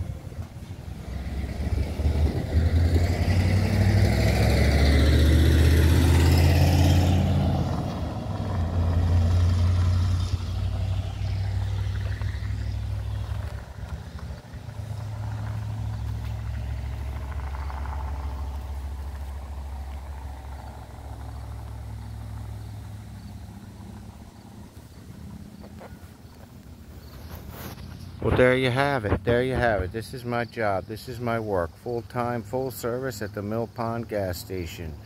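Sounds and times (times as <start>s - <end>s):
vehicle driving past: 0.0s - 29.0s
steady low rumble: 7.6s - 30.0s.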